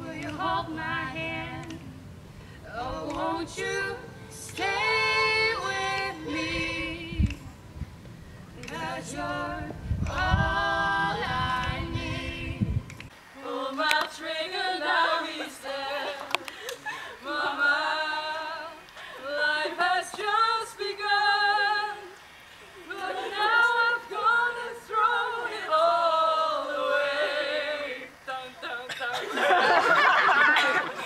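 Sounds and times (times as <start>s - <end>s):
girls singing a cappella: 0.0s - 7.7s, 8.5s - 31.0s.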